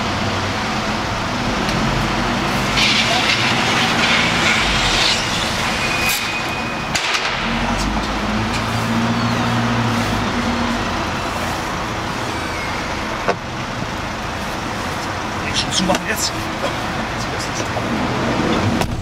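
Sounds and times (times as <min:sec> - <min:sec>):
steady rushing noise: 0:00.5 - 0:08.6.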